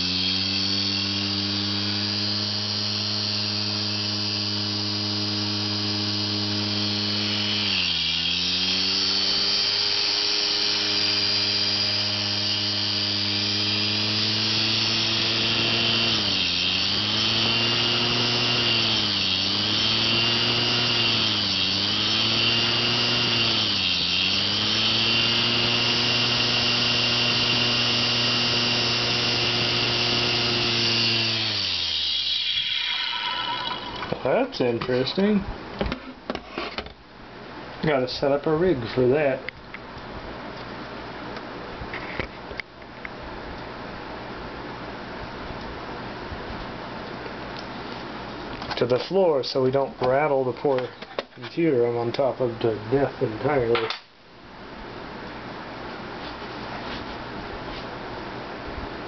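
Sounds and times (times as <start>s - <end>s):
hard drive motor whirring: 0.0s - 34.3s.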